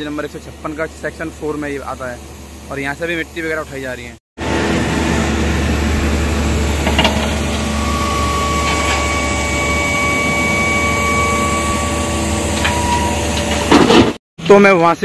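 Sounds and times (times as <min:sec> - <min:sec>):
faint whine: 0:00.0 - 0:13.8
diesel engines running: 0:00.0 - 0:14.2.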